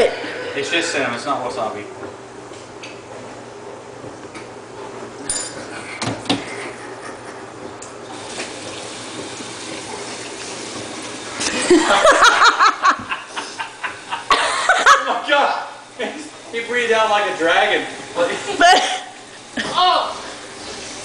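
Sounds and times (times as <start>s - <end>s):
faucet water splashing into sink: 8.1s - 11.5s.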